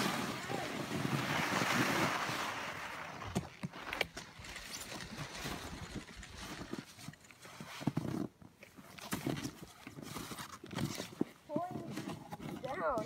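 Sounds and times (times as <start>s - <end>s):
snowboard sliding over snow: 0.0s - 8.3s.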